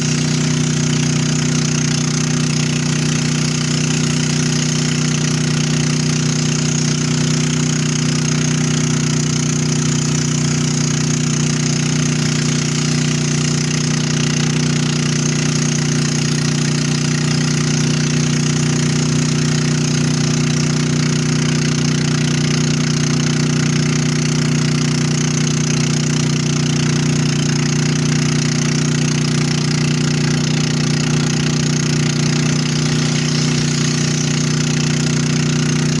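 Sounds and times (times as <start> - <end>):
motorboat engine droning: 0.0 - 36.0
rushing hiss: 32.5 - 34.5.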